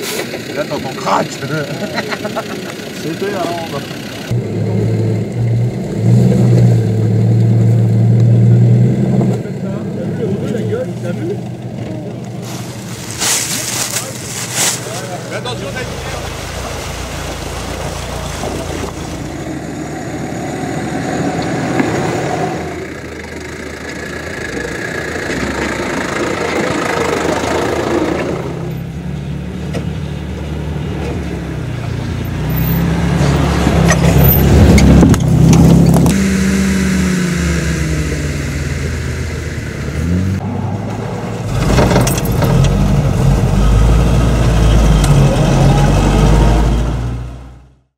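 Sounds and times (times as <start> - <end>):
engine revving over ruts: 0.0 - 47.9
off-road engines at low speed: 0.0 - 47.9
stream rushing over waterfall: 14.8 - 19.5.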